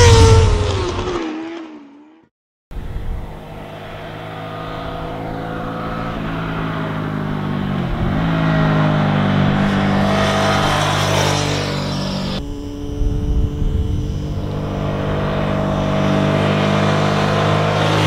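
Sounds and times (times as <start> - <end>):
motorcycle engine passing by: 0.0 - 18.0.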